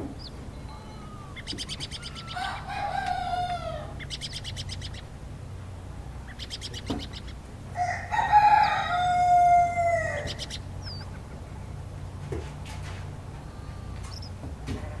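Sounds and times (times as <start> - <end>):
rooster crowing: 0.7 - 4.0, 7.7 - 10.6.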